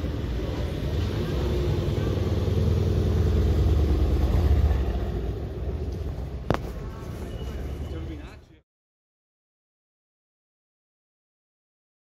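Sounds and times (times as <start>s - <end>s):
car engine driving past: 0.0s - 8.2s.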